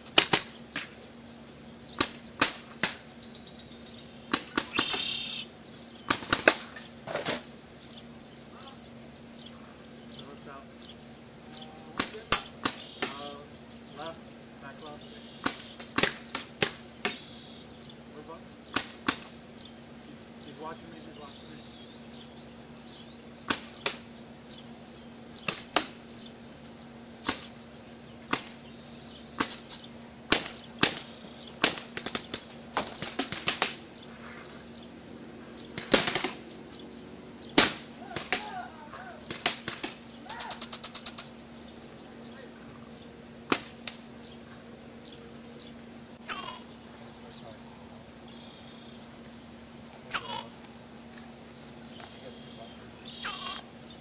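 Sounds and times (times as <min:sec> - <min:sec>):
paintball markers firing: 0:18.7 - 0:19.3, 0:30.3 - 0:33.8, 0:35.8 - 0:36.4.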